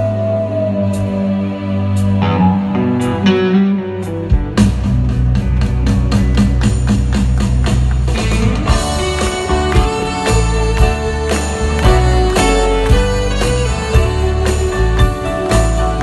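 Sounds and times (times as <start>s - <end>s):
saxophone: 0.0s - 3.3s
bass guitar: 0.0s - 16.0s
electric guitar: 0.0s - 16.0s
drum kit: 2.2s - 16.0s.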